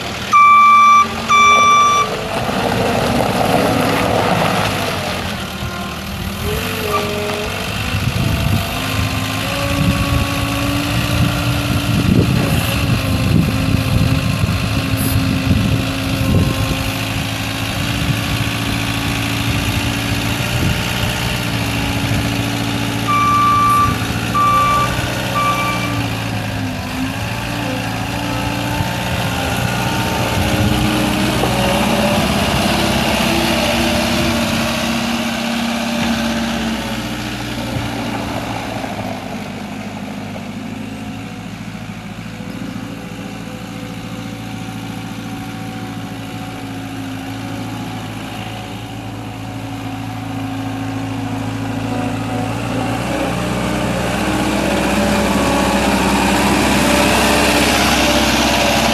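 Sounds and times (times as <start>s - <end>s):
diesel engine running: 0.0s - 58.9s
backup alarm beeping: 0.3s - 2.1s, 23.1s - 25.9s.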